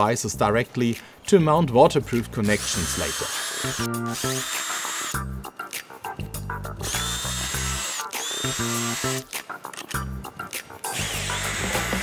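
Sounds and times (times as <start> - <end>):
background music: 0.0 - 12.0
drill clicks: 2.4 - 5.2, 6.8 - 10.0, 10.9 - 12.0
cordless drill motor whine: 2.6 - 5.2, 6.8 - 9.2, 10.9 - 12.0.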